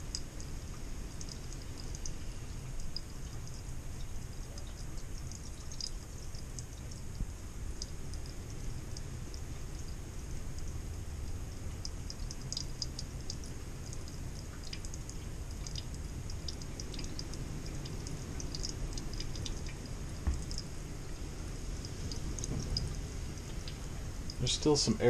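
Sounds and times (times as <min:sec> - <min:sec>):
water trickling into steel sink: 0:00.0 - 0:07.2
water ticks and spatters: 0:00.0 - 0:25.0
thump: 0:20.2 - 0:20.4.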